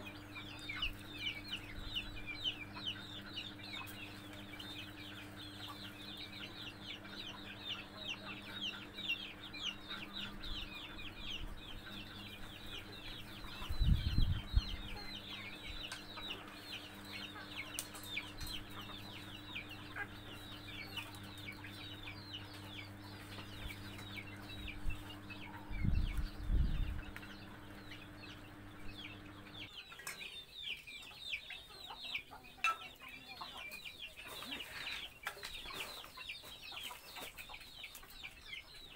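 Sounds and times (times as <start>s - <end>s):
steady low hum: 0.0s - 29.8s
chickens clucking: 0.0s - 38.9s
chicks peeping: 0.0s - 38.9s.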